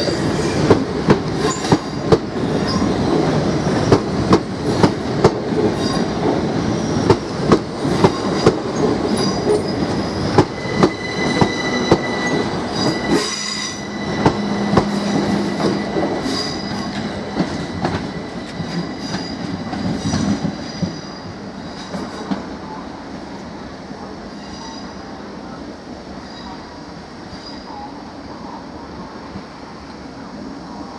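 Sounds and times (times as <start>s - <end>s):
train wheel squeal: 0.0s - 4.9s, 5.7s - 7.3s, 7.9s - 22.8s, 24.3s - 25.1s, 26.1s - 28.6s
train wheels clicking over rail joints: 0.5s - 13.4s, 14.2s - 21.1s.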